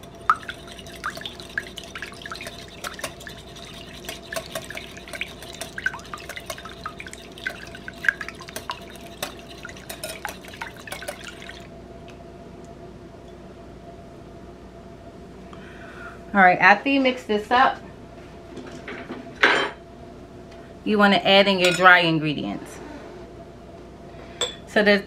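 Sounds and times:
whisk clicking against glass bowl: 0:00.0 - 0:11.6
liquid sloshing: 0:00.0 - 0:11.7.

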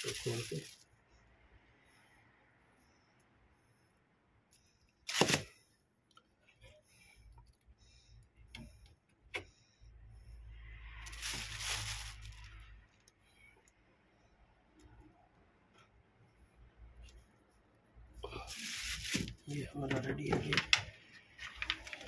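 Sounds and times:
scraping rustle of handling: 0:00.0 - 0:00.9, 0:11.0 - 0:12.7, 0:18.4 - 0:20.8.

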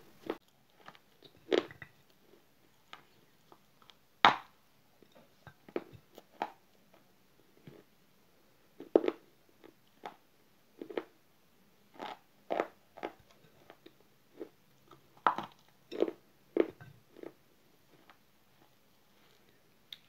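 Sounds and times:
person chewing crunchy clay: 0:00.2 - 0:04.4, 0:11.9 - 0:20.0.

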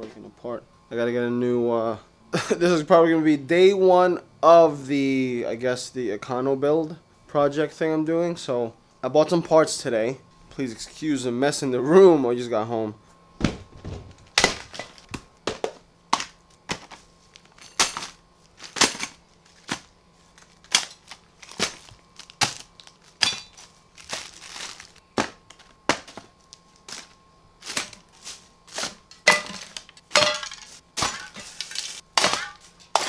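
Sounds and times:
plastic packaging crinkling: 0:18.4 - 0:32.8.

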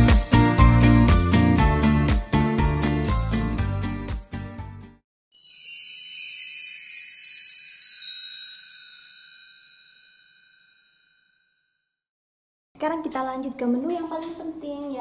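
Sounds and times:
background music: 0:00.0 - 0:05.0
shimmering bell-like chime: 0:05.3 - 0:11.9.

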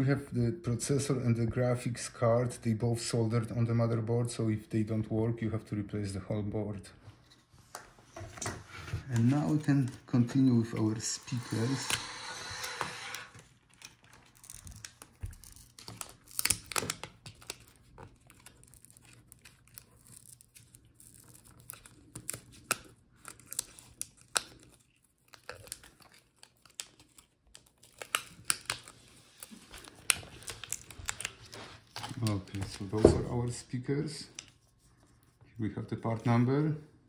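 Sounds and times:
plastic clicks and crinkles: 0:11.4 - 0:33.0.

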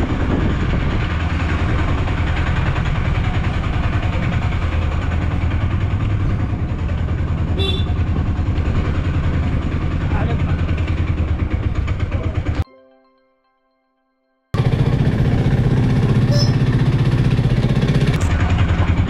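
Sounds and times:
vehicle engine rumble: 0:00.0 - 0:12.6, 0:14.6 - 0:19.0.

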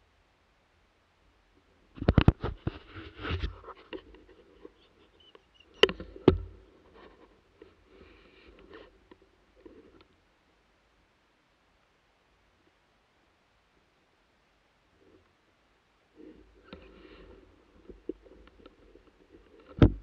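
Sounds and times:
scratching and rustling: 0:01.9 - 0:10.2, 0:16.2 - 0:20.0.

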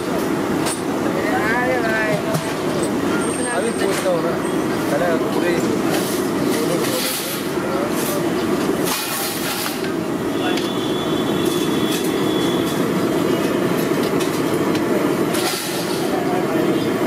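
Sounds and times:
food deep-frying in hot oil: 0:04.2 - 0:17.0.

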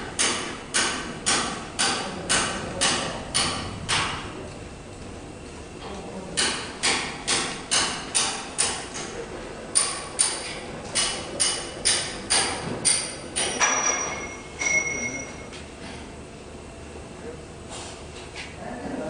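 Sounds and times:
hammer strikes: 0:00.2 - 0:04.2, 0:06.4 - 0:09.1, 0:09.8 - 0:15.1.

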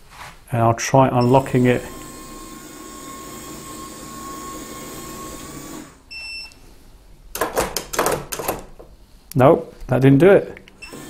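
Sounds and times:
lock motor whirring: 0:01.2 - 0:06.1, 0:10.8 - 0:11.0.

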